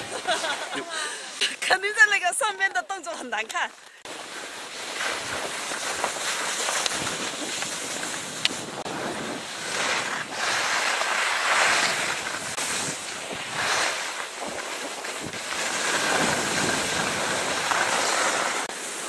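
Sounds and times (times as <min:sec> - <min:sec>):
skis sliding through snow: 0:00.0 - 0:02.1, 0:03.1 - 0:19.0
wind buffeting microphone: 0:05.1 - 0:10.8, 0:11.5 - 0:18.7.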